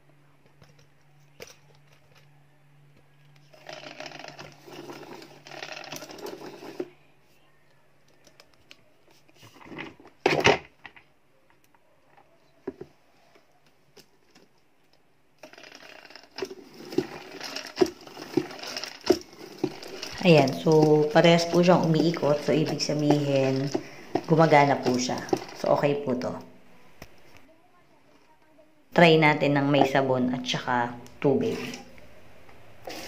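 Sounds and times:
spin mop rattling in bucket: 3.5s - 6.9s, 15.4s - 26.5s, 29.3s - 30.7s.

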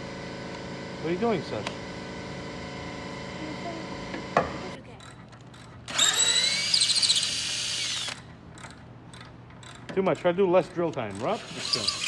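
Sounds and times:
cordless drill whining: 5.9s - 8.2s, 11.2s - 12.0s.

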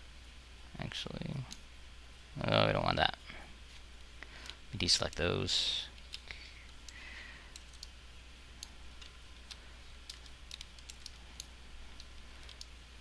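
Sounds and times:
low steady hum: 0.0s - 13.0s
mouse and keyboard clicks: 8.6s - 12.7s.

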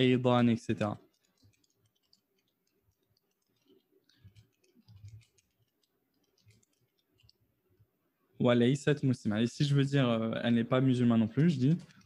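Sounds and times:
faint keyboard typing: 0.7s - 7.5s, 11.4s - 12.0s.

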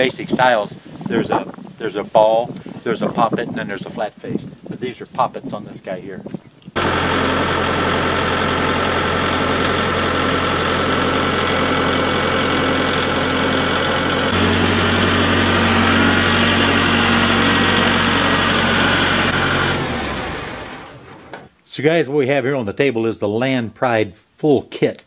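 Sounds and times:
tractor diesel engine idling: 6.8s - 21.4s.

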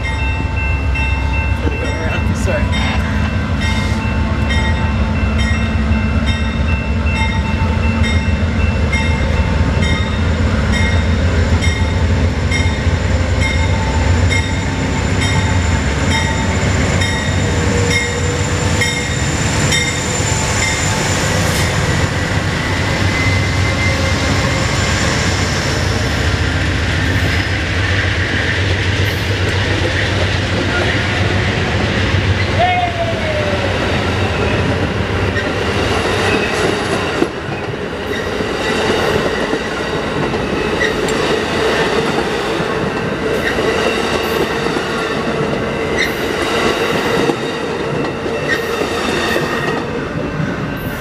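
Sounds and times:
locomotive bell ringing: 0.0s - 21.4s, 22.6s - 25.1s
diesel locomotive engine: 0.0s - 51.0s
train wheels on rails: 0.0s - 51.0s.

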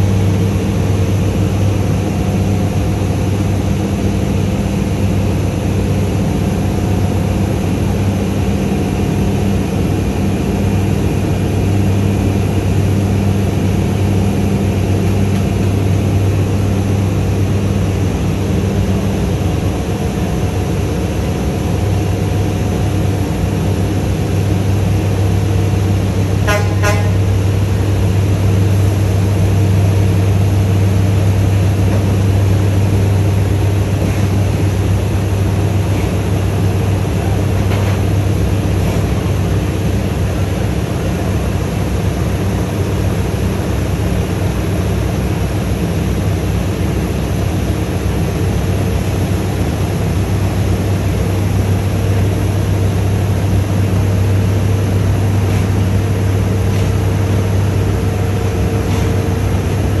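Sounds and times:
truck diesel engine running: 0.0s - 60.0s
short horn toot: 26.4s - 27.2s.

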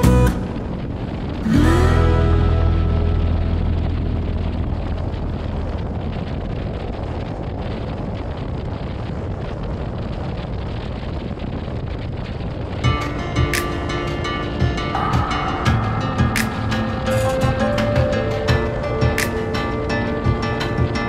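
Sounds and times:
motorcycle rumble: 0.0s - 21.0s
wind rushing over microphone: 0.0s - 21.0s.

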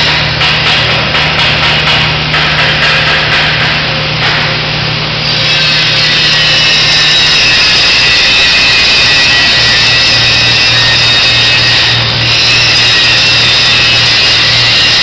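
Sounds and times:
steady low hum: 0.0s - 12.3s
grinder whining on steel: 3.6s - 15.0s
power tools grinding and sawing: 5.2s - 15.0s.

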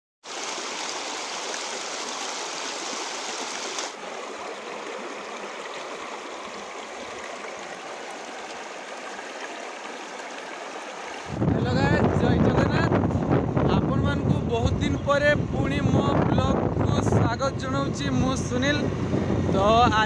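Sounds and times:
stream rushing over stones: 0.2s - 12.0s.

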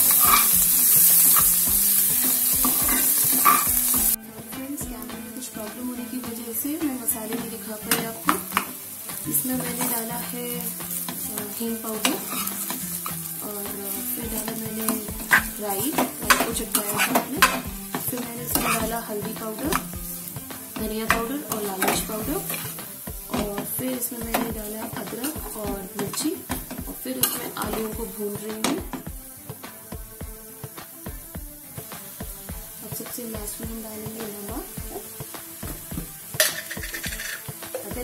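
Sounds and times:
spatula knocking on pan: 0.0s - 4.2s, 14.2s - 29.2s, 34.5s - 38.0s
spatula scraping metal pan: 0.0s - 4.2s, 7.3s - 27.9s, 35.8s - 37.9s
light frying sizzle: 0.0s - 38.0s.

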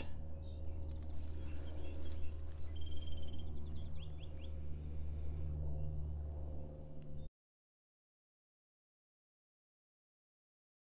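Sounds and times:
bird chirps: 0.0s - 4.8s
steady low hum: 0.0s - 7.3s.

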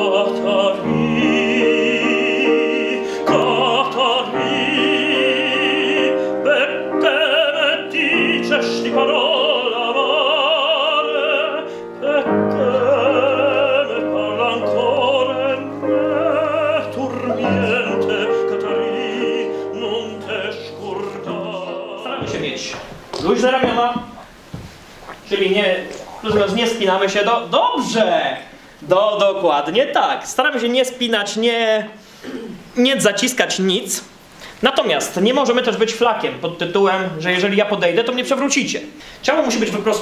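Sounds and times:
male tenor singing opera: 0.0s - 24.2s
piano accompaniment: 0.0s - 28.0s
singer breathing: 3.0s - 3.3s, 39.0s - 39.2s.

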